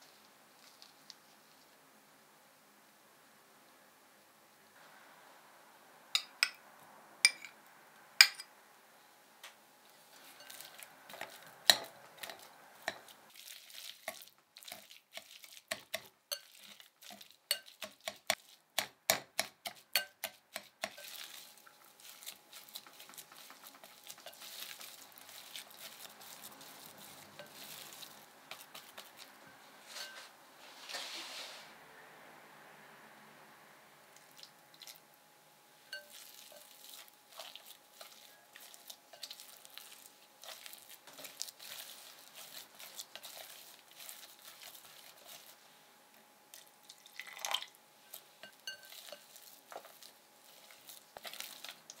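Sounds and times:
spatula stirring thick mash: 0:00.0 - 0:01.7, 0:09.8 - 0:31.7, 0:35.7 - 0:52.0
whisk tapping glass bowl: 0:07.3 - 0:07.5, 0:08.2 - 0:08.5, 0:15.7 - 0:21.3, 0:48.1 - 0:50.0.

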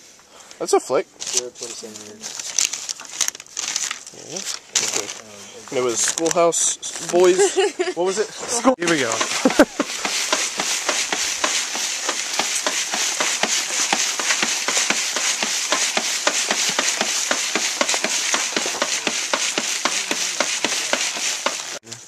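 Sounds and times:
dirt and pebbles rattling on mesh: 0:01.2 - 0:07.4, 0:08.8 - 0:21.9.

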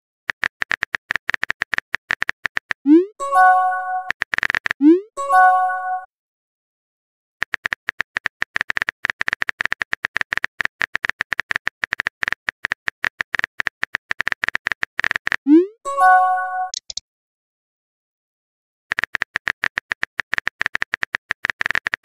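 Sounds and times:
notification chime: 0:02.9 - 0:04.1, 0:04.9 - 0:06.1, 0:15.6 - 0:16.8
short electronic clicks: 0:16.7 - 0:17.0.

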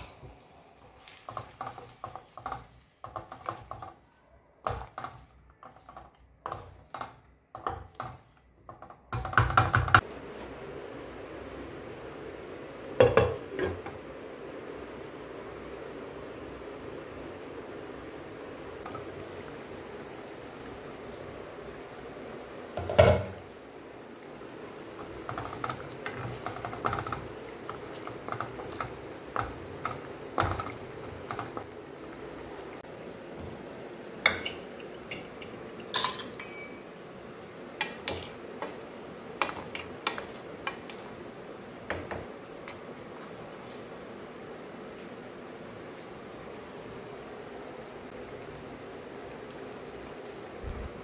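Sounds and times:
paste bubbling: 0:18.8 - 0:32.9, 0:46.5 - 0:51.0
metal spoon clattering on cookware: 0:35.9 - 0:36.8.

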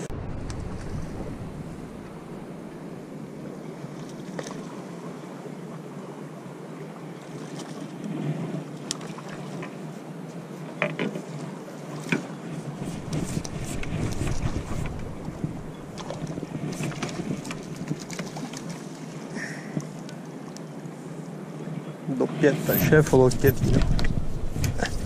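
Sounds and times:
wind rumble on microphone: 0:00.0 - 0:04.0, 0:11.5 - 0:18.3, 0:22.1 - 0:25.0
water lapping on rocks: 0:11.4 - 0:20.2.

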